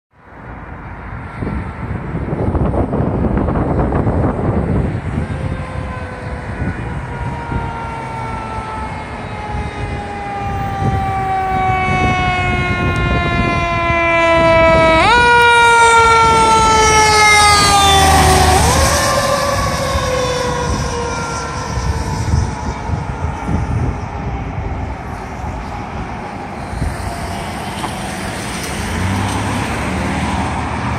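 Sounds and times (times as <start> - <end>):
traffic noise: 0.1 - 30.9
fire engine siren wailing: 1.3 - 30.9.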